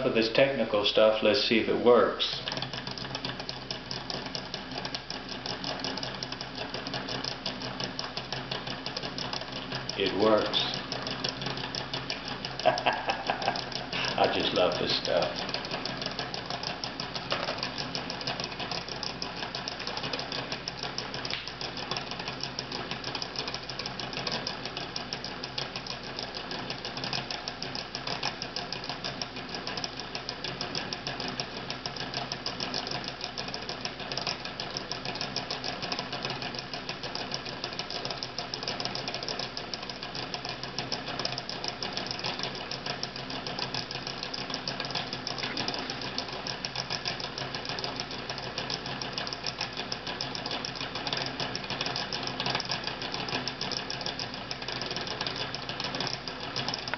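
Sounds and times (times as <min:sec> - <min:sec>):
stirling engine clattering: 0:00.0 - 0:23.6.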